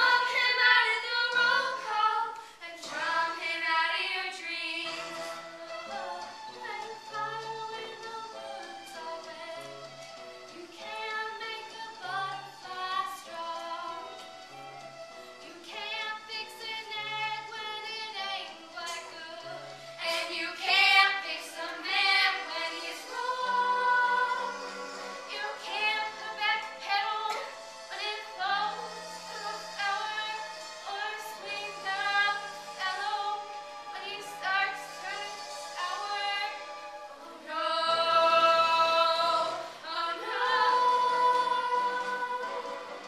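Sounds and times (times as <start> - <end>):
young women singing show tune: 0.0 - 14.4, 15.4 - 43.0.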